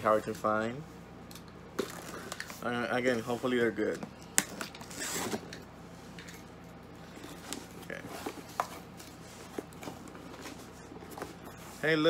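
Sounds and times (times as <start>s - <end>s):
cardboard tearing and scraping: 4.8s - 5.6s.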